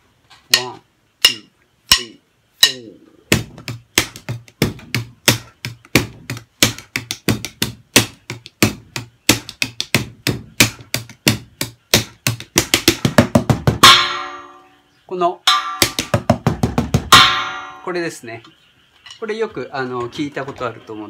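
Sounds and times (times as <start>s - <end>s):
drumsticks on cardboard practice kit: 0.3s - 14.6s, 15.5s - 17.5s.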